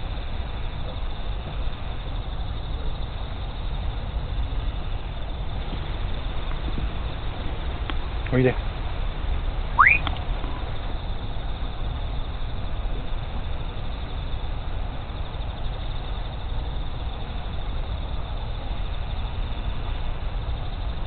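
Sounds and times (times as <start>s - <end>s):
low outdoor rumble and hiss: 0.0s - 21.0s
short rising whistle-like tone: 9.8s - 10.1s.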